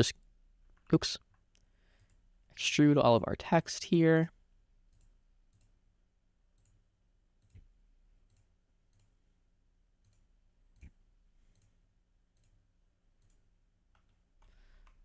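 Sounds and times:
computer mouse clicks: 0.8 - 2.2, 4.9 - 5.8, 6.6 - 6.8, 7.4 - 9.2, 10.0 - 12.6, 13.2 - 15.0.

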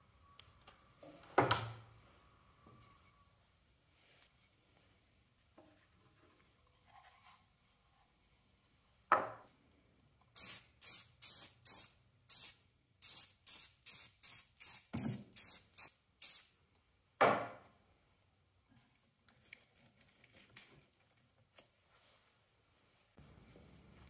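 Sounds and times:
aerosol spray can hissing: 10.4 - 16.5.

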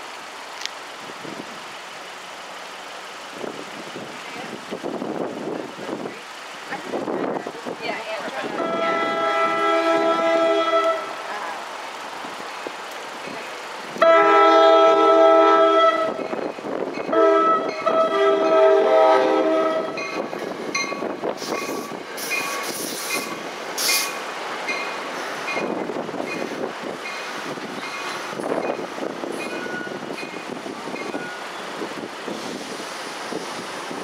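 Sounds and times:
train horn blasts: 8.4 - 11.5, 14.0 - 16.4, 17.1 - 20.2
crossing bell ringing: 15.8 - 19.0, 19.6 - 23.4, 24.7 - 31.6.

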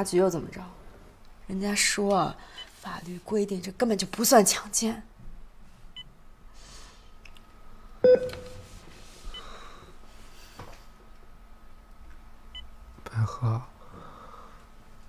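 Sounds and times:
faint steady hum: 0.0 - 15.0
patient monitor beeps: 8.0 - 8.7.

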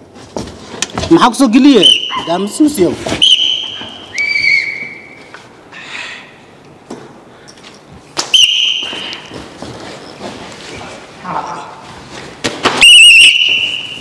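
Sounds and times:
high whistle tones: 1.7 - 2.5, 3.2 - 5.3, 8.3 - 9.2, 12.8 - 14.0.

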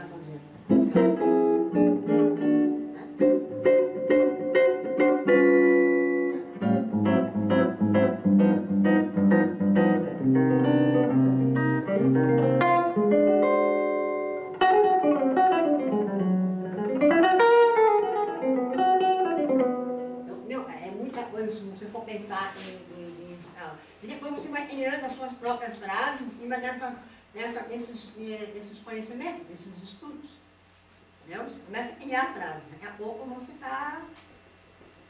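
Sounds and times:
electric guitar playing: 0.6 - 20.6.

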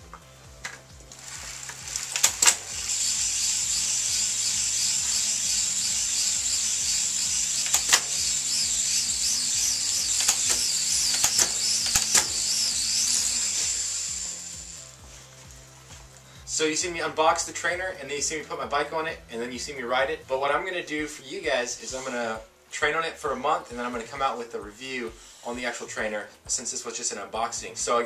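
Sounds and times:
tyre whirring on bike trainer: 0.0 - 17.4
background music: 0.0 - 28.0
bike clicks: 0.1 - 13.2.

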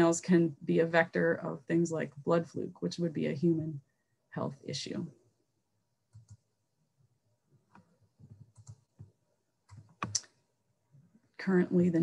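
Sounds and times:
mouse and keyboard clicks: 9.7 - 10.3.

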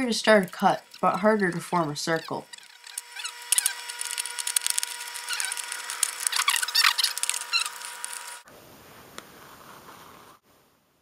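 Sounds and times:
can opener tearing metal: 0.4 - 8.4.

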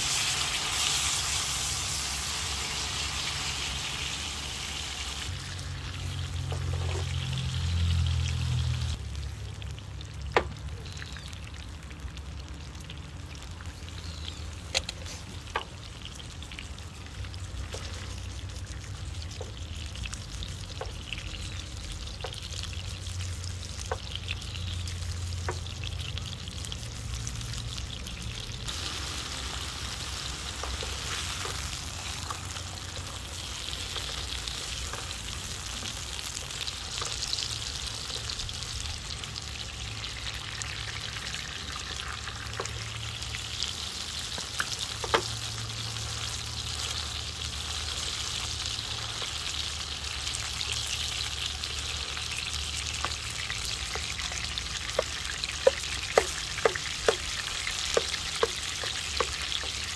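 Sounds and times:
steak sizzling in oil: 0.0 - 9.8, 12.8 - 59.9.

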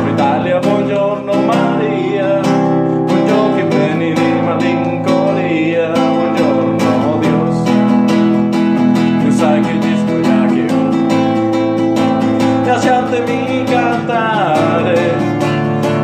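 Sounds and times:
man singing: 0.0 - 8.2, 8.8 - 16.0
acoustic guitar strumming chords: 0.0 - 16.0.

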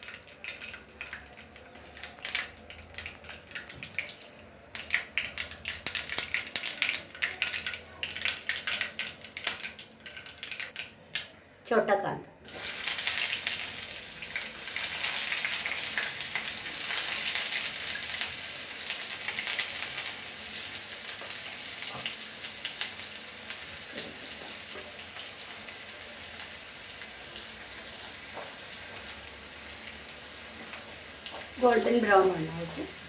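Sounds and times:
shallots sizzling in hot oil: 0.0 - 11.5, 12.4 - 33.0.

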